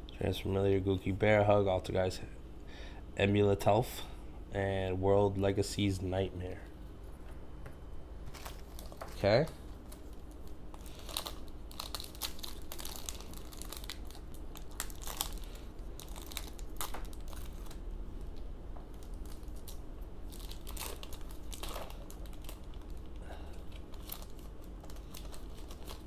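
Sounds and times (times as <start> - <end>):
foil wrapper tearing and crinkling: 8.3 - 26.0.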